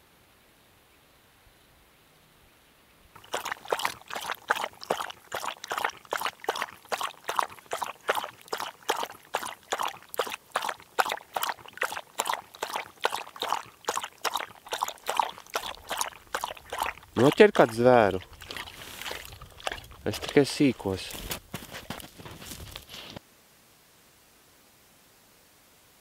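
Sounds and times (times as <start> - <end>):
dog lapping water: 3.1 - 23.2.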